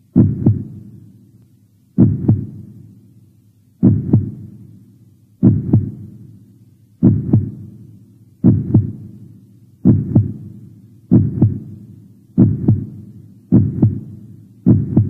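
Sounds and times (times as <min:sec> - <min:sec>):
heartbeat thumps: 0:00.1 - 0:00.8, 0:02.0 - 0:02.7, 0:03.8 - 0:04.5, 0:05.4 - 0:06.1, 0:07.0 - 0:07.7, 0:08.4 - 0:09.1, 0:09.8 - 0:10.5, 0:11.1 - 0:11.8, 0:12.4 - 0:15.0.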